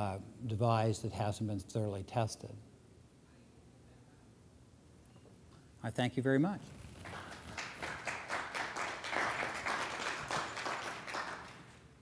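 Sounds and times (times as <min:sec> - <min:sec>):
audience applauding: 0:07.0 - 0:11.9.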